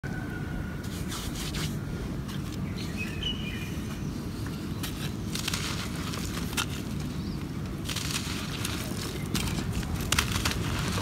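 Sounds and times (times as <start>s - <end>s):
low background rumble: 0.0s - 11.0s
faint bird chirps: 2.6s - 4.9s
dry material crunching by hand: 4.8s - 11.0s.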